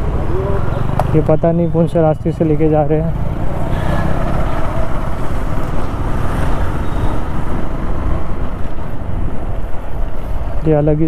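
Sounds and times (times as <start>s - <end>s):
road and traffic noise: 0.0s - 11.0s
wind rushing over microphone: 3.2s - 10.7s.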